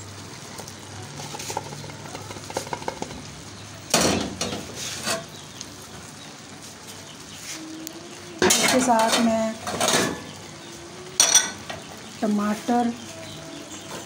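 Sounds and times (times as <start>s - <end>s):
metal spoon scraping a pan: 1.2s - 3.2s, 4.4s - 5.4s, 8.4s - 10.3s.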